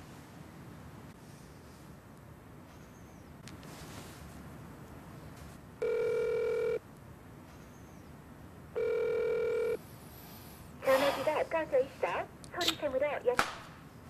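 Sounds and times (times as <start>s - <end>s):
telephone ringback tone: 5.8s - 6.8s, 8.8s - 9.8s.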